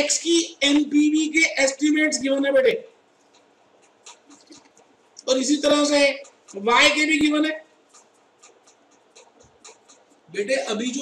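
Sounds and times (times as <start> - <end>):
low room noise: 0.0 - 11.0
stylus scratching on pen tablet: 3.1 - 11.0.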